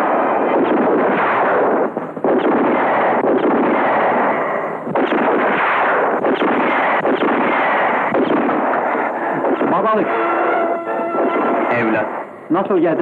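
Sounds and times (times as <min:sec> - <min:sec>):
sharp gunshot cracks: 0:00.0 - 0:10.0
continuous gunfire volley: 0:00.0 - 0:10.1, 0:11.0 - 0:12.3.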